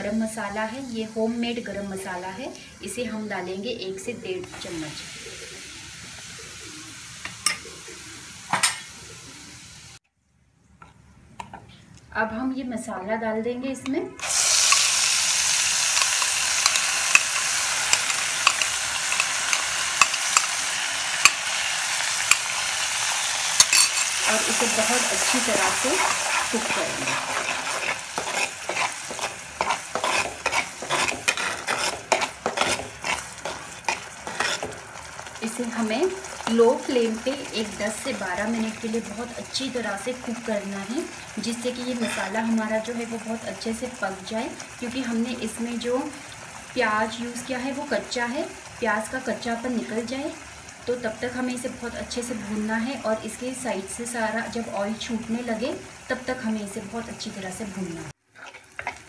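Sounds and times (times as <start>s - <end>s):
spices sizzling in hot oil: 0.0s - 10.0s, 13.8s - 59.0s
spatula scraping a pan: 14.2s - 35.3s, 41.8s - 42.4s, 58.3s - 59.0s.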